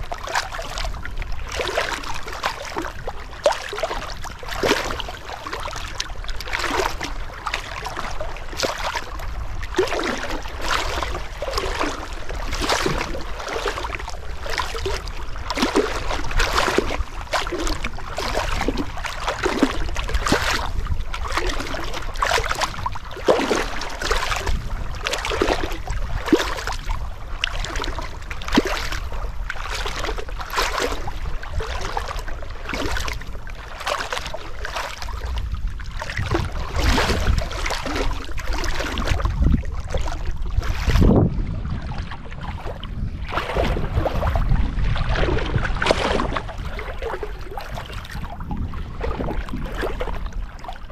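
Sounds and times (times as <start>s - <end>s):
water splashing and sloshing: 0.0s - 50.9s
low steady rumble: 32.2s - 50.9s.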